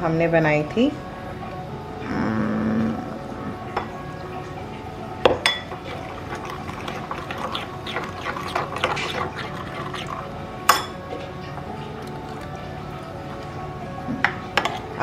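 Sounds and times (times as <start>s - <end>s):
metal clinking on bowl: 5.4s - 5.8s, 10.7s - 11.0s
metal spoon stirring batter: 5.7s - 10.3s, 14.6s - 15.0s
thick puree pouring into bowl: 5.7s - 10.5s, 11.1s - 13.6s.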